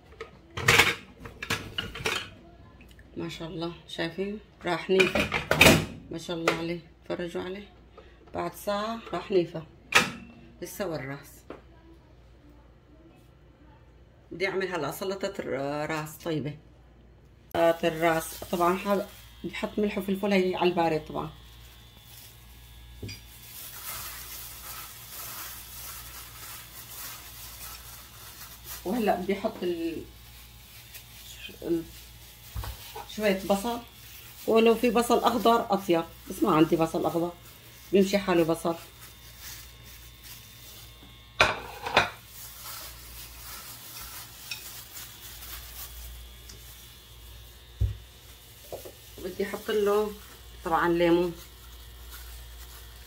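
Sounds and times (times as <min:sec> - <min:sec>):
plastic gloves rustling against meat: 0:17.6 - 0:53.0.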